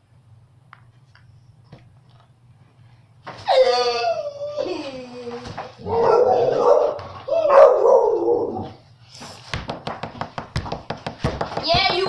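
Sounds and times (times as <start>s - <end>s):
dog barking long barks: 5.8s - 8.6s.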